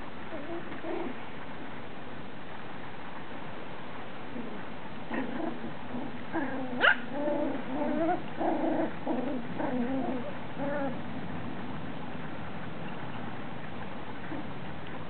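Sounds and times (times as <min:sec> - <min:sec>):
puppies yipping and whining: 0:06.3 - 0:11.0.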